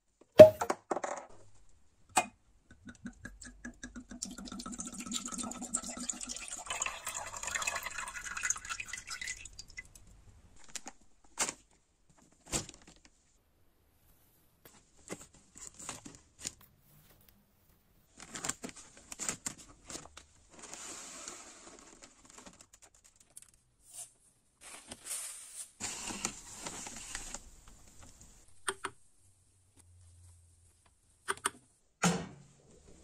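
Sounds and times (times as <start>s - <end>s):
plastic bags crinkling: 18.1s - 20.8s.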